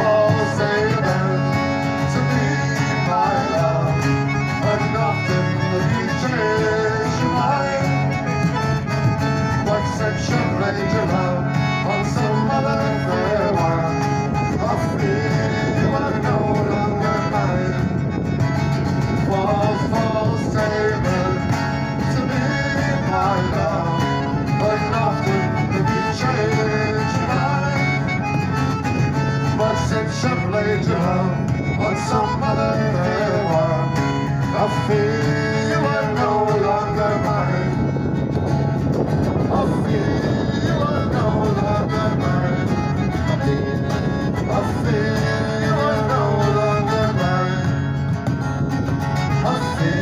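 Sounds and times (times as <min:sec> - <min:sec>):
piano accordion: 0:00.0 - 0:50.0
strummed acoustic guitar: 0:00.0 - 0:50.0.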